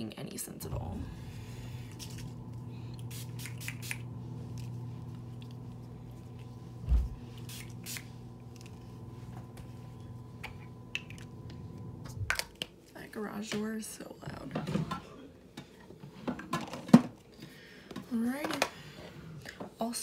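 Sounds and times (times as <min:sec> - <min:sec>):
heavy thump: 0:00.6 - 0:01.6, 0:06.8 - 0:07.2
garage door opener motor hum: 0:00.6 - 0:12.6.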